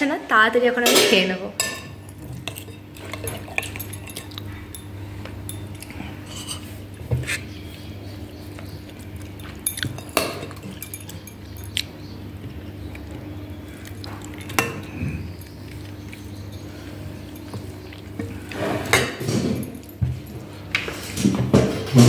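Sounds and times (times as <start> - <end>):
spoon scraping ceramic bowl: 6.2 - 7.5.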